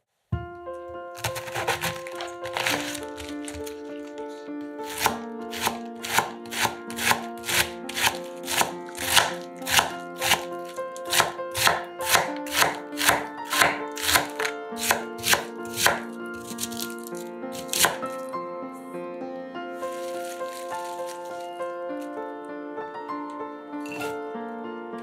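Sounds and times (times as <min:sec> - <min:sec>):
background music: 0:00.4 - 0:25.0
knife cutting cabbage on board: 0:01.2 - 0:04.2, 0:04.8 - 0:18.2, 0:19.9 - 0:21.5.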